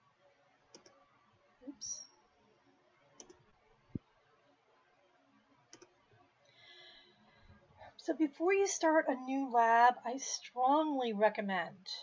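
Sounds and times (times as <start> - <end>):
computer mouse double-clicks: 0.7 - 1.0, 3.2 - 3.4, 5.7 - 6.0.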